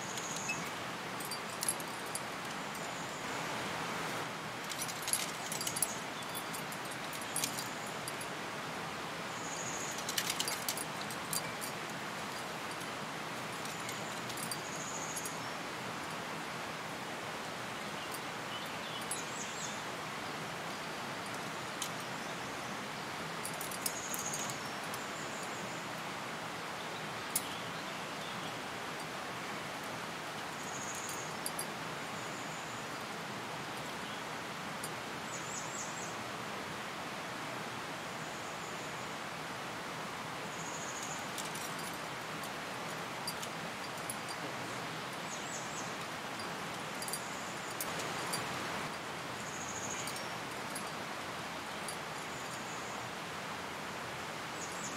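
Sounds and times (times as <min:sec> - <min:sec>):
faint bird chirps: 0:00.0 - 0:00.7
outdoor background hiss: 0:00.0 - 0:54.9
wind in the trees: 0:00.0 - 0:54.9.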